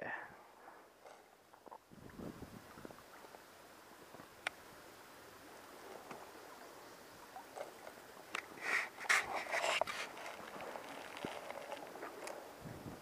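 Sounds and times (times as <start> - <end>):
faint water: 0.0 - 13.0.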